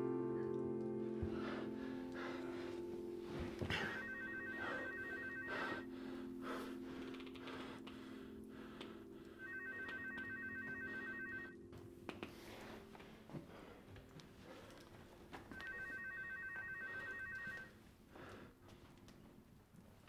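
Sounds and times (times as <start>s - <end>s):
telephone ringing: 3.6s - 5.9s, 9.4s - 11.6s, 15.5s - 17.8s.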